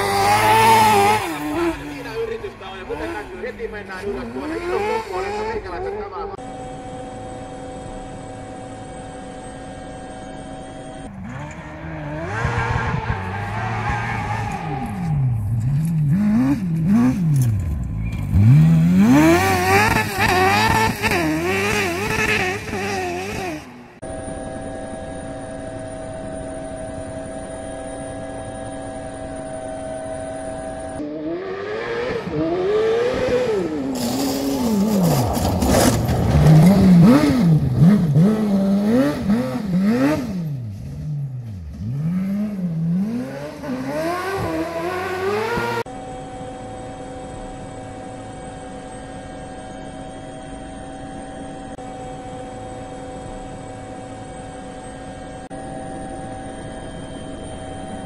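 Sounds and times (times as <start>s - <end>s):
race kart engine revving: 0.0s - 24.5s, 30.5s - 46.0s
kart sliding on gravel: 33.8s - 37.9s
quadcopter propellers humming: 42.9s - 58.0s.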